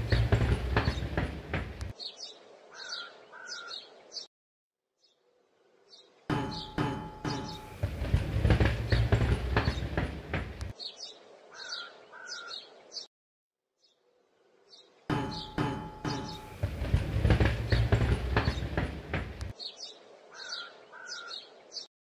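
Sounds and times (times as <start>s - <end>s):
rolling ball knocks and clicks: 15.1s - 19.5s.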